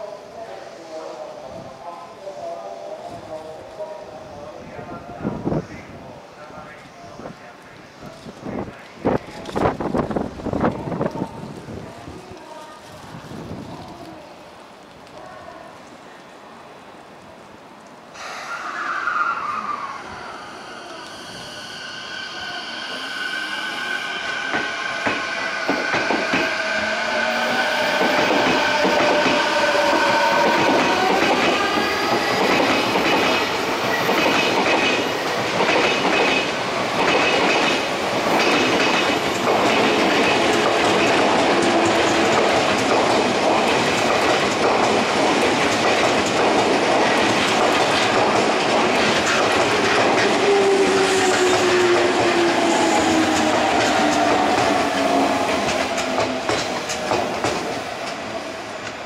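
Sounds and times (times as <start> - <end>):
train wheel clatter on rails: 24.5 - 26.6, 27.9 - 50.5, 51.2 - 58.2.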